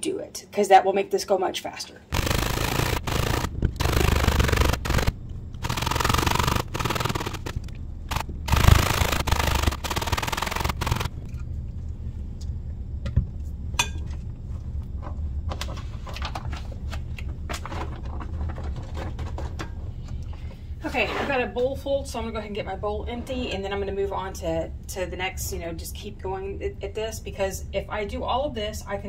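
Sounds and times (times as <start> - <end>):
low hum: 2.1 - 18.8.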